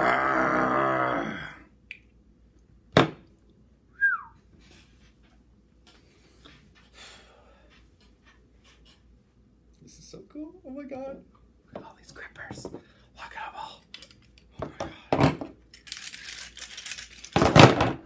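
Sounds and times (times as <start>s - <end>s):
man straining groan: 0.0s - 1.7s
rustling and breathing: 4.4s - 9.1s, 11.9s - 17.2s.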